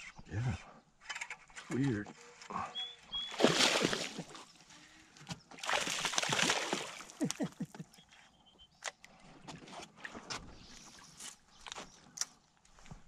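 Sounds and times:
fish splashing at surface: 3.3 - 4.4, 5.6 - 7.2.

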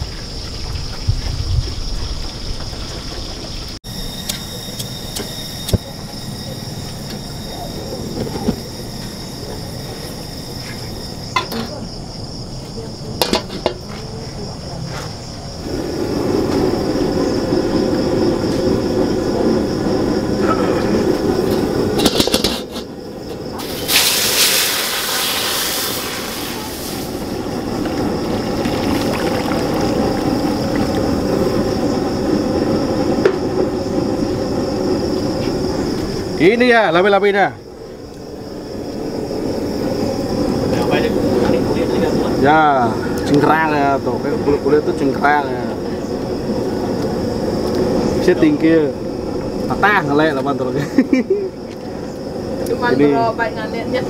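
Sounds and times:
gas burner rushing: 3.8 - 11.8, 15.5 - 54.0
wok clanking on stove: 13.2 - 13.8, 21.5 - 22.9
water splashing into wok: 23.6 - 31.0.

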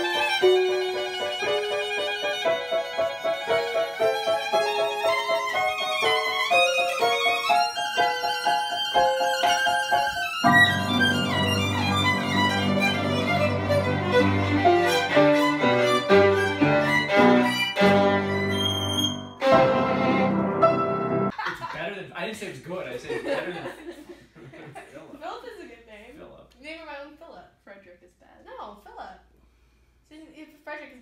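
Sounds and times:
solo violin melody: 0.0 - 21.3
lower fuller string notes: 10.5 - 21.3.

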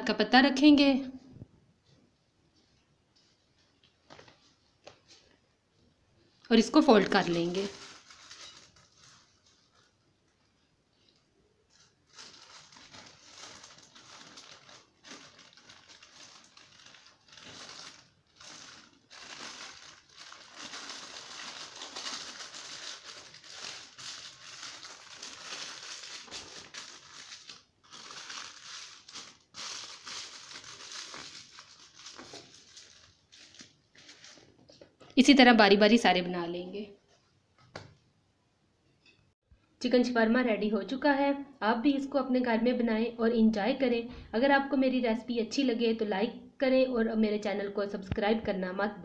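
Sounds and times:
paper crinkling and rustling: 7.0 - 10.2, 11.0 - 35.0.

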